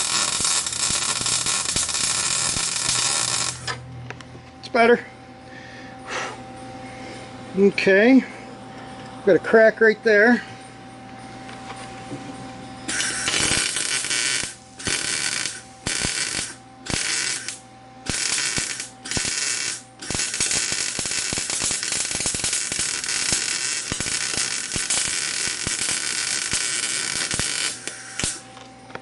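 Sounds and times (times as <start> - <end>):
welder arc crackling: 0.0 - 3.8, 12.9 - 28.7.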